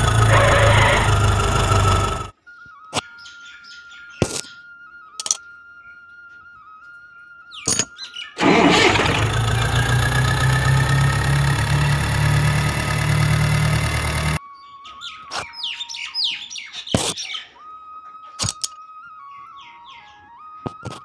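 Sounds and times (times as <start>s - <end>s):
birds chirping: 0.0s - 2.3s, 2.9s - 5.2s, 7.4s - 18.4s, 19.2s - 20.9s
toy tractor motor whine: 0.0s - 2.3s, 8.4s - 14.4s.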